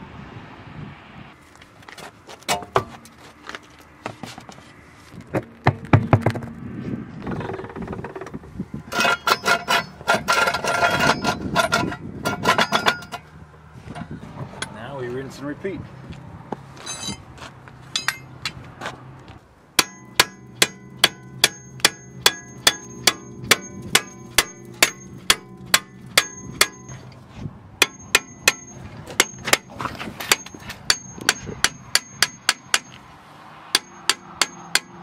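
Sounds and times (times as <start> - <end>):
hammer blows on metal disc: 19.8 - 27.1
metallic ringing of disc: 19.8 - 27.2, 27.8 - 29.7, 30.3 - 33.0.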